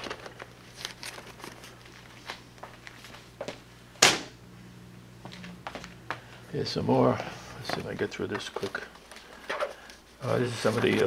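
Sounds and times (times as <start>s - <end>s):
plastic folder rustling: 0.0s - 3.3s, 7.1s - 11.0s
low steady hum: 0.0s - 11.0s.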